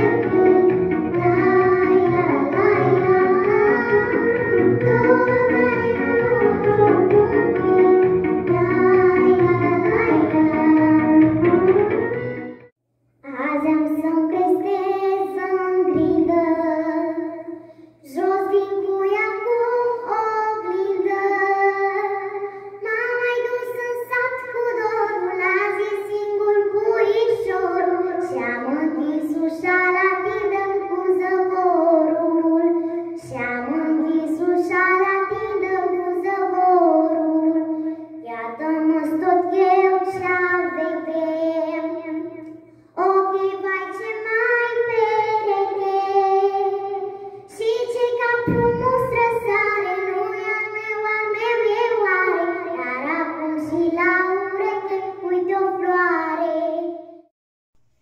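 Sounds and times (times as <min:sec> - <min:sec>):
girl singing into a microphone: 0:00.0 - 0:12.4, 0:13.2 - 0:57.3
girl breathing: 0:17.5 - 0:18.0, 0:22.4 - 0:22.8, 0:32.8 - 0:33.2, 0:37.7 - 0:38.2, 0:47.1 - 0:47.5.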